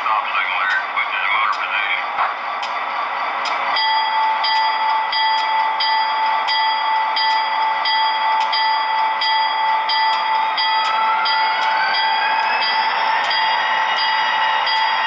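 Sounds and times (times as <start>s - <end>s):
locomotive bell ringing: 0.0s - 15.0s
steady background hum: 0.0s - 15.0s.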